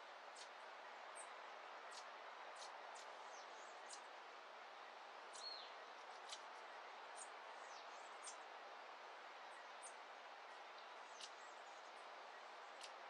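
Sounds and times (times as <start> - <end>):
soft steady hiss: 0.0 - 13.0.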